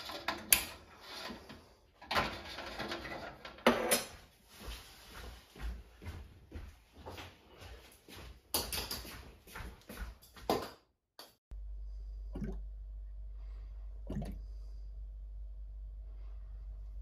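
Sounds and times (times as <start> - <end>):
low hum: 11.5 - 17.0
airlock bubbling: 11.9 - 12.9, 13.9 - 14.8.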